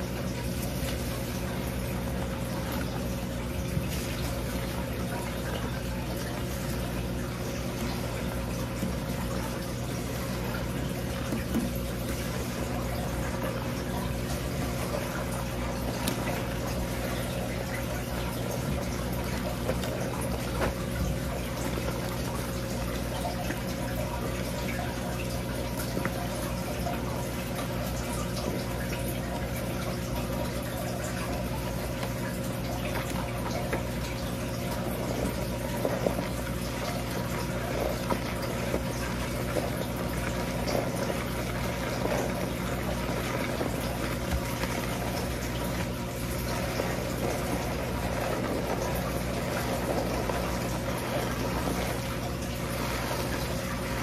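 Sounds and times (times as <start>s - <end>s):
steady low hum: 0.0s - 54.0s
water running: 0.0s - 54.0s
hands massaging shampoo lather: 31.4s - 54.0s.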